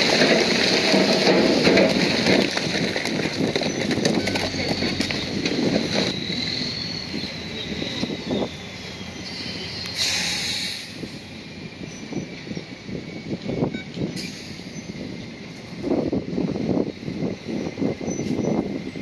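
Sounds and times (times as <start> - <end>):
bulldozer tracks clanking and squealing: 0.0 - 15.8, 17.3 - 19.0.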